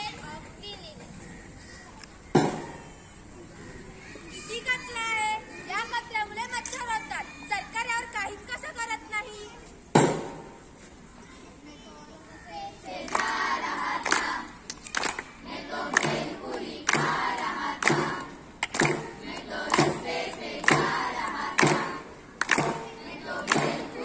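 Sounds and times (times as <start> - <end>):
group singing in unison: 12.9 - 14.5, 15.4 - 24.0
drum beats: 16.0 - 24.0.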